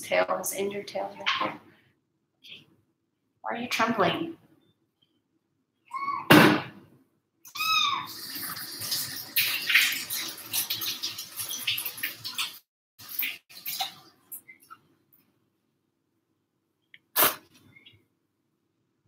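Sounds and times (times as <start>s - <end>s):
kitten meowing: 7.5s - 8.1s.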